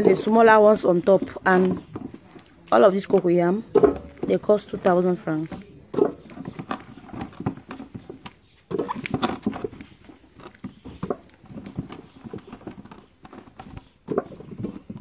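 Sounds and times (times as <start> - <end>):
corms clattering in metal pot: 0.0 - 7.9.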